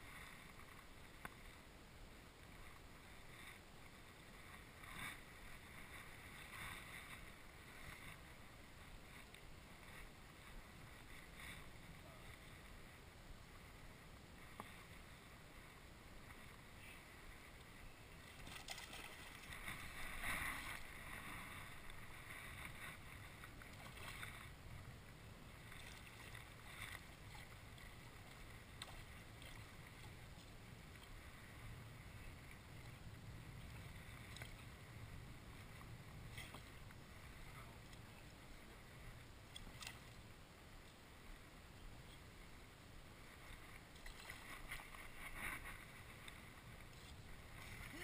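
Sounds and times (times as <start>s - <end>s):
water against boat hull: 17.3s - 40.2s, 43.3s - 48.0s
fish splashing: 18.3s - 20.8s.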